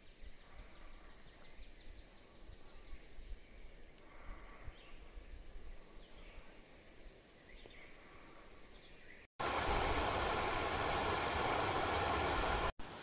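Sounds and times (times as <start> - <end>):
faint bird chirps: 0.0 - 9.3
outdoor wind hum: 0.2 - 13.0
stream pouring over weir: 9.4 - 13.0.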